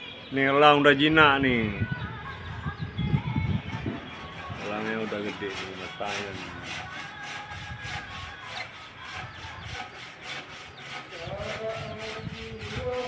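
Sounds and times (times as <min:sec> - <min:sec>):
rhythmic rasping: 0:03.3 - 0:13.0.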